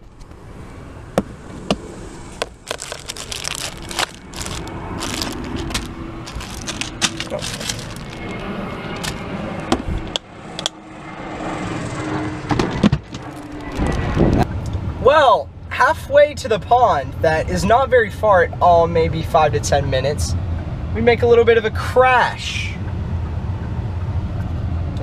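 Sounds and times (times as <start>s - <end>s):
plastic boxes clacking and rattling: 2.4s - 8.2s.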